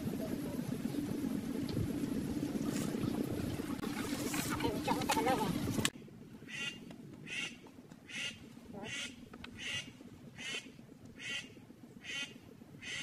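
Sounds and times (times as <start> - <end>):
steady low background noise: 0.0 - 13.0
duck quacking: 6.5 - 13.0.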